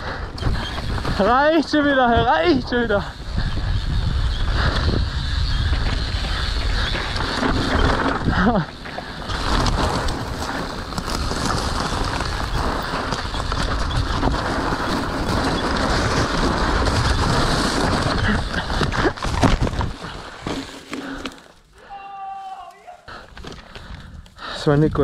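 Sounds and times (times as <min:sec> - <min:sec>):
bike tyres and rattle: 0:00.0 - 0:25.0
wind on microphone: 0:00.3 - 0:08.5.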